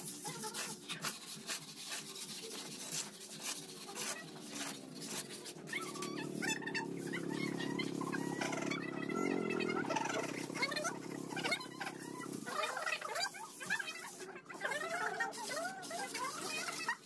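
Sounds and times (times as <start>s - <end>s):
motorcycle engine: 4.4s - 13.1s.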